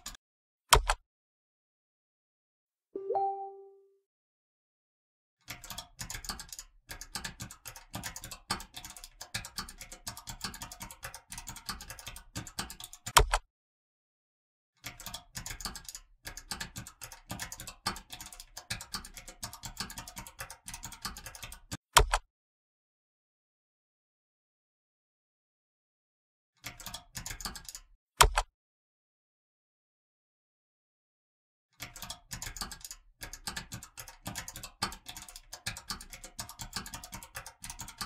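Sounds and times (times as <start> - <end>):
typing on a keyboard: 5.4 - 13.4, 14.8 - 22.2, 26.6 - 28.4, 31.8 - 38.0.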